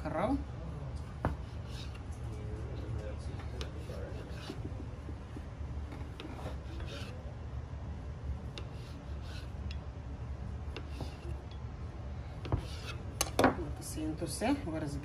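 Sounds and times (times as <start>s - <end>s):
steady low hum: 0.0s - 15.0s
knife sawing through dough: 8.6s - 9.6s, 12.4s - 13.1s.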